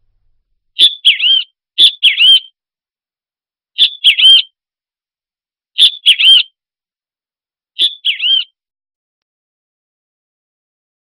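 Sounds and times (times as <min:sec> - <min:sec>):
bird chirping whistled call: 0:00.8 - 0:02.6, 0:03.8 - 0:04.6, 0:05.8 - 0:06.6, 0:07.8 - 0:08.6.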